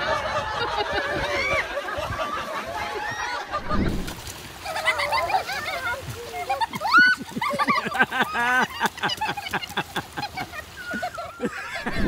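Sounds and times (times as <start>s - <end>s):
low thud: 3.5s - 4.3s.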